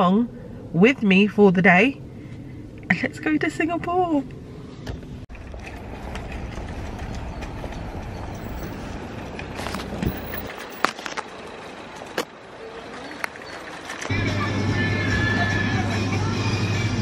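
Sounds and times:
traffic rumble: 0:00.0 - 0:17.0
footsteps clicking on pavement: 0:05.6 - 0:11.3.

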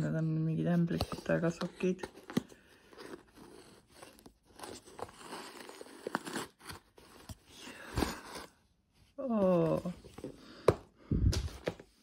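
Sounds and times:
cardboard scraping: 0:00.9 - 0:08.6.

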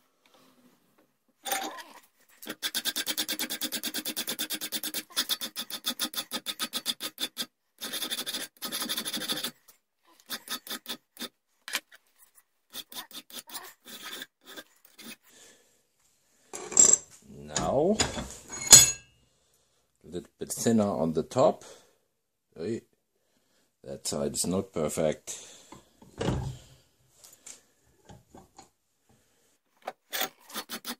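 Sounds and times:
hand file rasping on steel: 0:02.4 - 0:09.6, 0:10.2 - 0:11.4, 0:12.7 - 0:15.2, 0:30.1 - 0:30.9.

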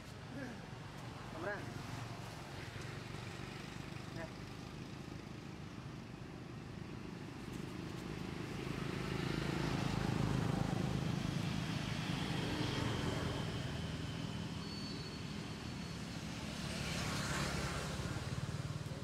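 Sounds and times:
passing vehicle engine drone: 0:08.5 - 0:19.0.

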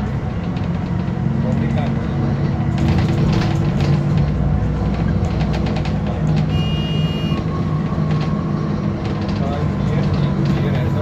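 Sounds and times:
bus diesel engine running: 0:00.0 - 0:11.0.

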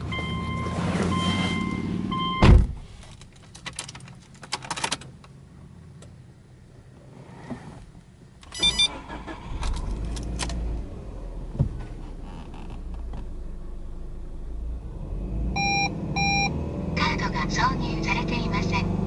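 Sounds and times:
beeping warning chime: 0:00.1 - 0:02.5, 0:08.6 - 0:09.0, 0:15.6 - 0:16.6
car door shutting: 0:00.7 - 0:02.8, 0:08.5 - 0:13.4
ignition clicks: 0:08.4 - 0:13.4
starter whirring: 0:08.5 - 0:13.5
car engine idling: 0:08.6 - 0:14.9.

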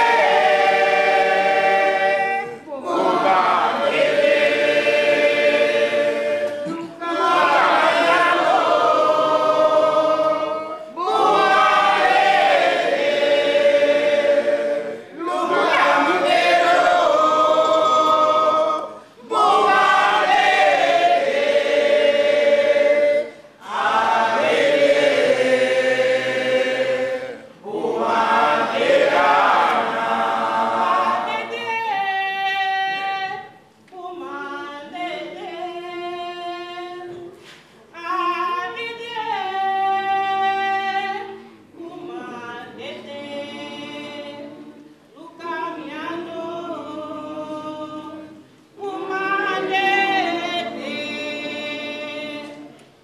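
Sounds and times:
group singing unaccompanied: 0:00.0 - 0:53.0
woman singing into a microphone: 0:31.3 - 0:52.7.

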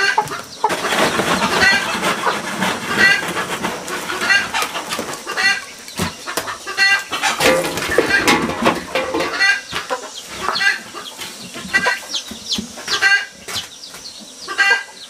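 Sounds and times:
chickens clucking: 0:00.0 - 0:15.0
pots and bucket knocking: 0:07.2 - 0:10.0.

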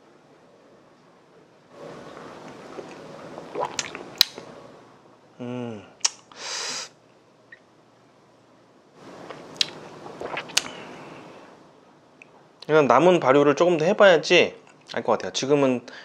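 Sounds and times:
person sipping and slurping: 0:01.8 - 0:04.4, 0:09.2 - 0:11.6
low hmm: 0:05.4 - 0:06.0
breathy puff: 0:06.3 - 0:07.0.

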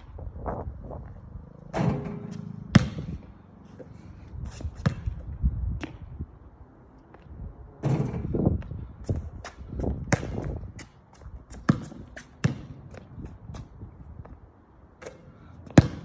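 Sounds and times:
basketball bouncing on hard court: 0:01.9 - 0:03.3, 0:04.8 - 0:05.2, 0:09.8 - 0:13.1, 0:15.7 - 0:16.0.

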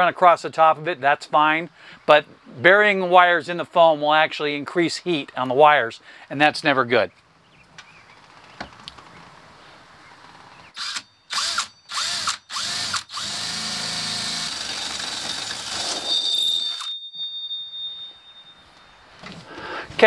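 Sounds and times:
cordless drill motor whine: 0:10.8 - 0:16.9
hole saw squealing: 0:10.8 - 0:18.9.

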